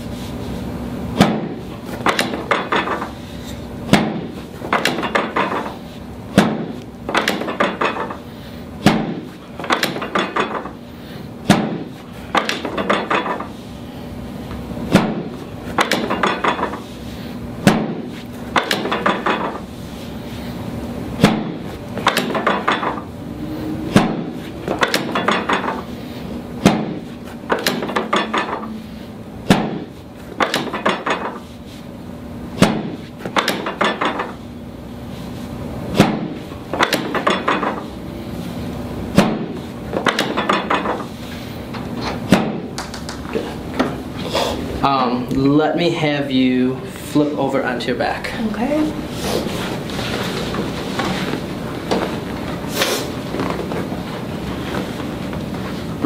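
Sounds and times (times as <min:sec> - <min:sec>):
table section snapping down with clack: 0:01.2 - 0:03.1, 0:03.9 - 0:05.7, 0:06.4 - 0:08.2, 0:08.8 - 0:10.8, 0:11.5 - 0:13.5, 0:14.9 - 0:16.8, 0:17.6 - 0:19.6, 0:21.2 - 0:23.1, 0:23.9 - 0:25.9, 0:26.6 - 0:28.8, 0:29.5 - 0:31.4, 0:32.6 - 0:34.4, 0:36.0 - 0:37.9, 0:39.2 - 0:41.1, 0:42.0 - 0:44.0.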